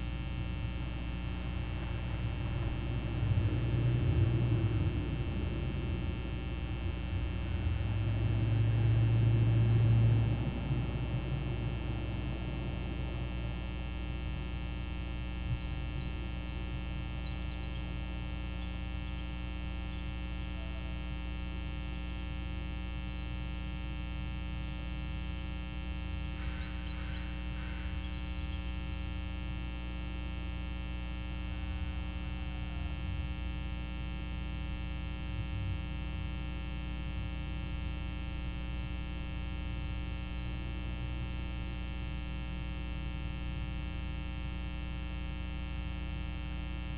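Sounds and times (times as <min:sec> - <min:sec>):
electrical mains hum: 0:00.0 - 0:46.9.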